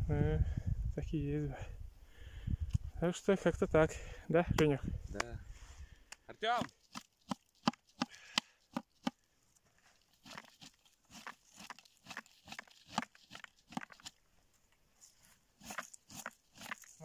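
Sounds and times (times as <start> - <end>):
berry scoop clicking and rustling: 10.0 - 14.2, 15.6 - 17.0.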